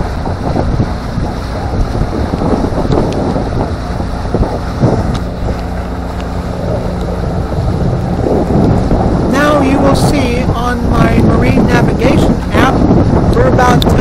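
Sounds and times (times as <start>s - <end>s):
boat motor humming: 0.0s - 14.0s
wind buffeting microphone: 0.0s - 14.0s.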